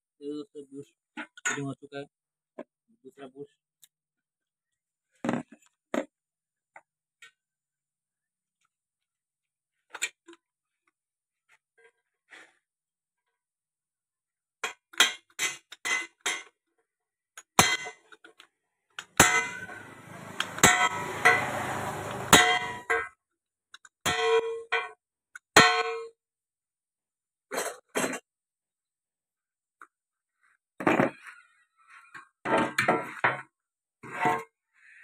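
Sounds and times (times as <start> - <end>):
hammer blows on steel: 19.2 - 22.9.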